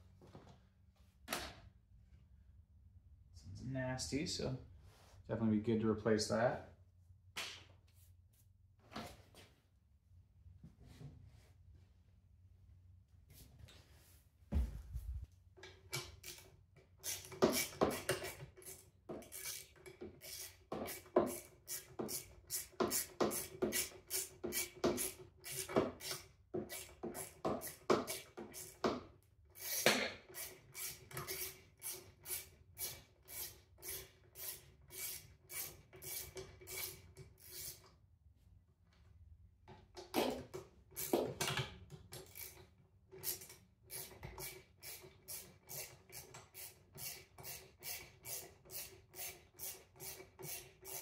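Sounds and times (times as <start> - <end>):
hand ratchet rasping: 16.0 - 28.9, 29.6 - 37.9, 42.2 - 51.0.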